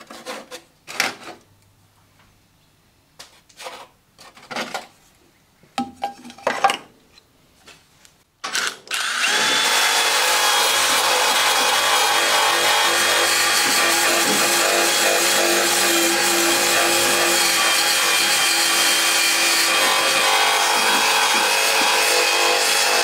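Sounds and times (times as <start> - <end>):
wire wheel drill scouring metal: 8.9 - 23.0.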